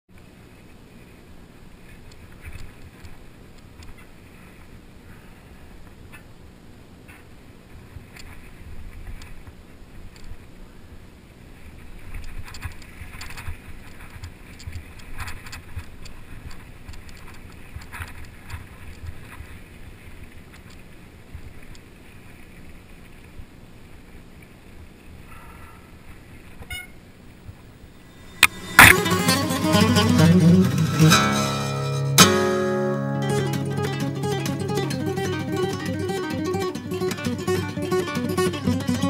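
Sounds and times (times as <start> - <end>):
music: 28.2 - 39.0.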